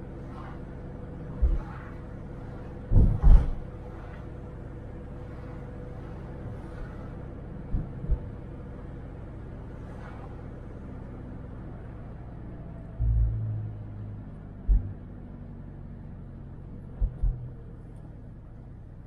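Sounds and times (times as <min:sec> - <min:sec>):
engine and road rumble: 0:00.0 - 0:19.0
low thumps: 0:01.3 - 0:01.8, 0:02.8 - 0:03.8, 0:07.7 - 0:08.4, 0:14.6 - 0:15.1, 0:16.9 - 0:17.6.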